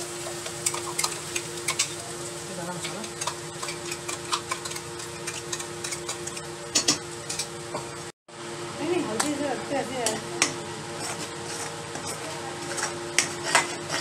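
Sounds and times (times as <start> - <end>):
spatula scraping pan: 2.8 - 8.0, 10.4 - 14.0.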